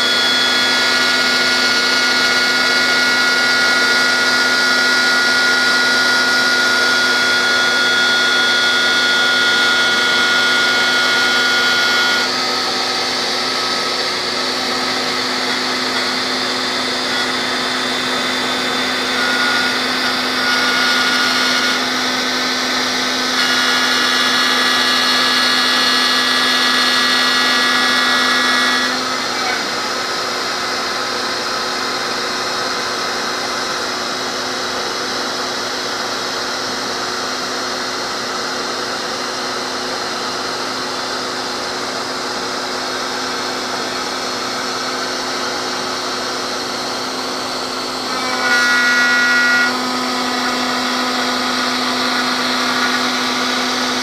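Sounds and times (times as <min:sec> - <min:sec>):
router spindle cutting metal: 0:00.0 - 0:54.0
vacuum hum: 0:00.0 - 0:54.0.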